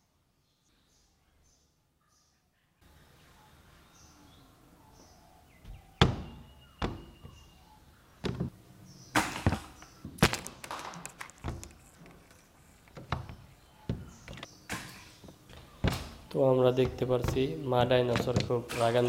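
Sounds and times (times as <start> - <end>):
plastic toy figures knocking: 9.2 - 19.0.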